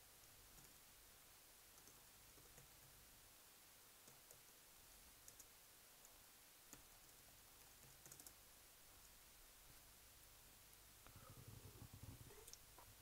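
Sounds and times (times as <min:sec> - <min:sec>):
faint computer keyboard clicks: 0:00.6 - 0:00.8, 0:01.8 - 0:03.0, 0:05.2 - 0:07.2, 0:07.8 - 0:08.4.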